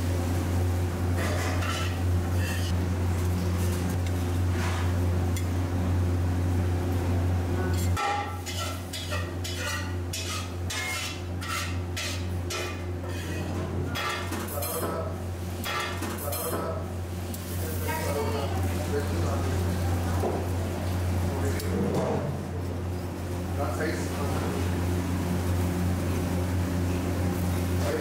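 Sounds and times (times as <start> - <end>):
metal spatula scraping griddle: 1.2 - 2.8, 7.8 - 14.2.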